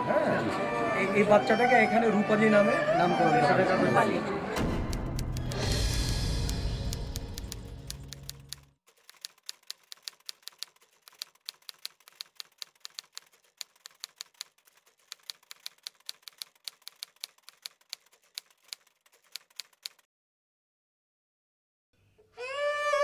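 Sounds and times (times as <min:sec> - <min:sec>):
typewriter key clicks: 0:04.6 - 0:20.0.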